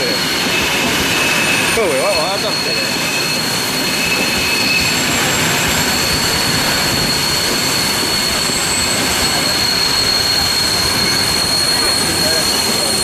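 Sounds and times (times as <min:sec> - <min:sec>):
high-pitched whine: 0:00.0 - 0:13.0
train wheels on rail: 0:00.0 - 0:13.0
rushing air: 0:02.8 - 0:12.7.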